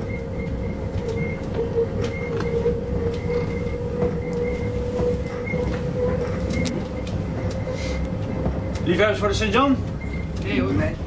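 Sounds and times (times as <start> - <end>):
electric bus drive whine: 0.0 - 11.0
low road rumble: 0.0 - 11.0.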